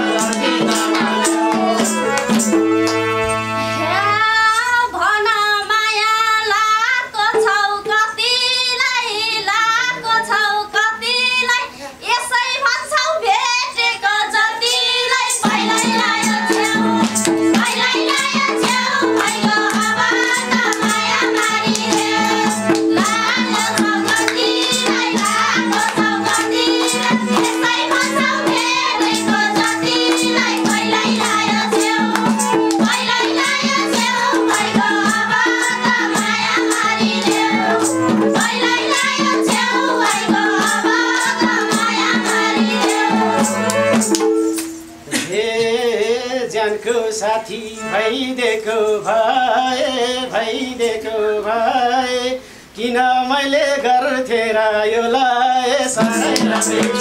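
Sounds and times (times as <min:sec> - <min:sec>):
group of women singing: 0:00.0 - 0:02.6, 0:03.8 - 0:44.8, 0:53.2 - 0:57.0
hand clapping: 0:00.0 - 0:03.1, 0:16.0 - 0:35.5, 0:36.2 - 0:44.8, 0:56.0 - 0:57.0
madal drum: 0:00.0 - 0:04.2, 0:15.4 - 0:45.3, 0:56.0 - 0:57.0
harmonium drone: 0:00.0 - 0:04.7, 0:15.3 - 0:44.8, 0:56.0 - 0:57.0.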